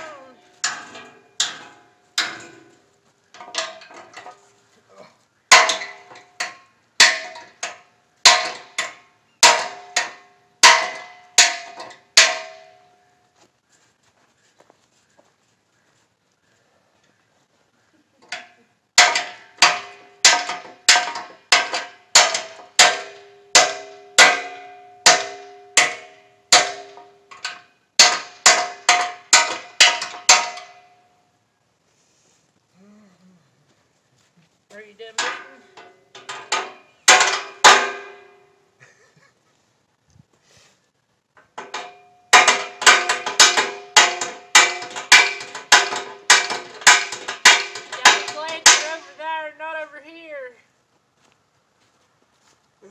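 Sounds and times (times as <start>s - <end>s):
hammer clanging on steel tubing: 0.4s - 2.8s, 5.5s - 12.9s, 18.3s - 31.0s, 35.1s - 38.5s, 41.4s - 49.2s.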